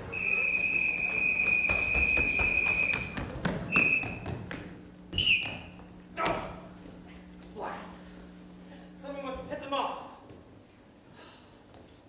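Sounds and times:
footsteps on stage floor: 0.0 - 8.4, 10.2 - 11.0
police whistle blasts: 0.1 - 3.1.

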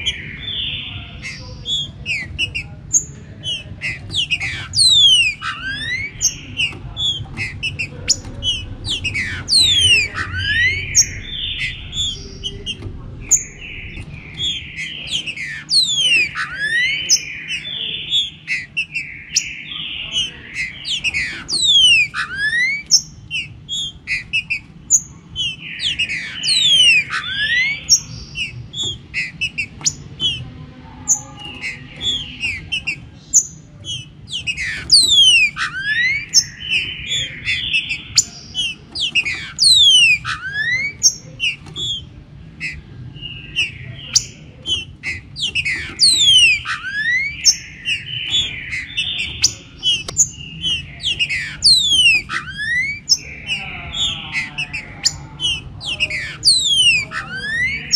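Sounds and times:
bird singing whistled phrases: 3.4 - 30.4, 31.1 - 57.9
low steady rumble: 5.6 - 15.5.

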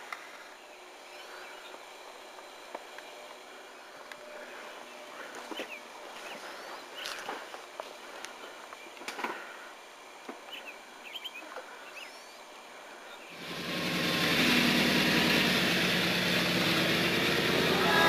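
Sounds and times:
faint bird chirps: 10.4 - 13.4
truck engine running loud: 13.3 - 18.0.

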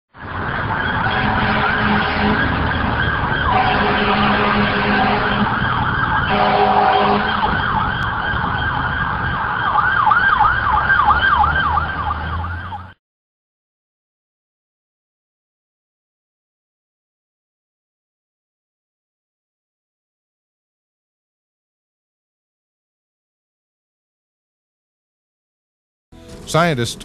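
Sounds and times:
emergency sirens wailing: 0.1 - 13.0.

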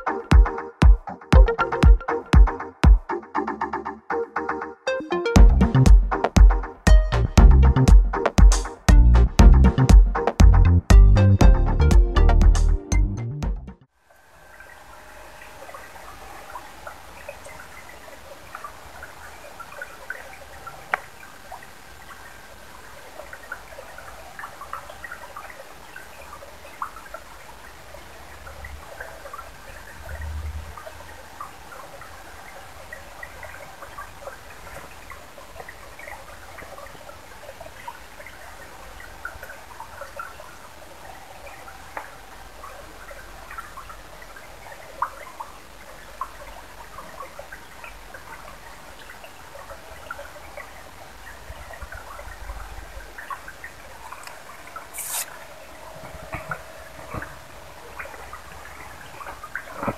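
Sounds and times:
stream trickling over stones: 14.1 - 59.9
water drips and plinks: 14.5 - 59.9.

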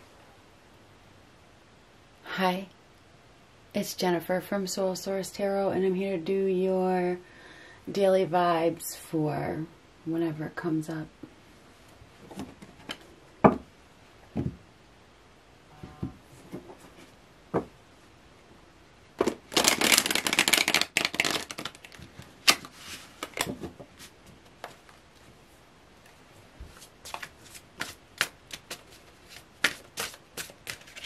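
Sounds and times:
card shuffling: 19.2 - 25.0, 26.7 - 31.0.

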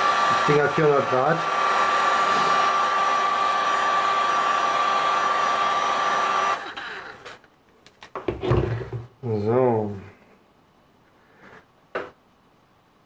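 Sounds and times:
heat gun blowing: 0.0 - 7.4.

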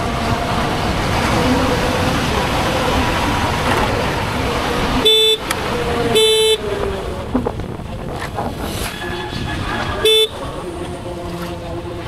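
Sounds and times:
wind and road noise: 0.0 - 12.0
vehicle horn blasts: 5.0 - 5.5, 6.2 - 6.6, 10.0 - 10.4.

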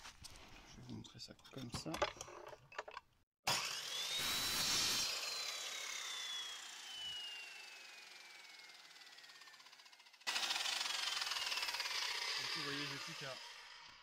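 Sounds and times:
mitre saw whine cutting wood: 3.5 - 14.0.

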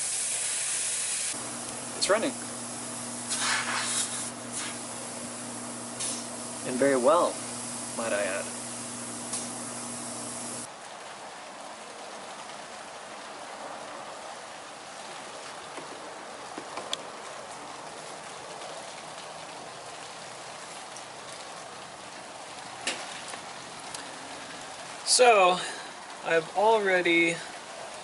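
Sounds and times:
steady rain: 0.0 - 28.0
fridge compressor hum: 1.4 - 10.7.

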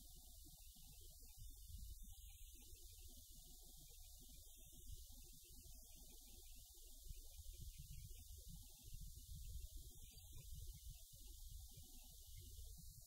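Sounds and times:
wind rumble on microphone: 1.3 - 3.1, 7.0 - 13.0.

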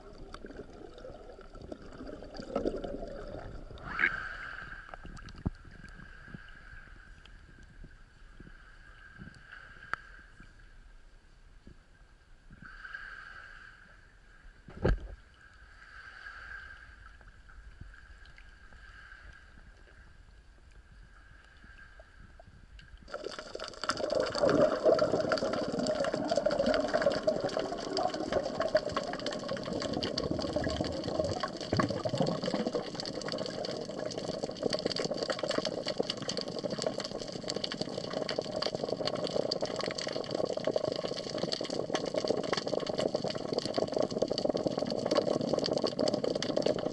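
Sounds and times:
underwater rushing and bubbling: 0.0 - 7.4, 23.0 - 46.9
water at the surface: 0.0 - 46.9.

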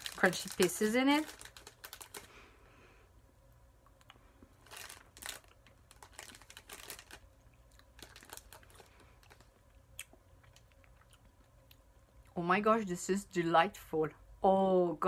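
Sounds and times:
chocolate wrapper crinkles and clicks: 0.0 - 2.3, 3.9 - 11.8.

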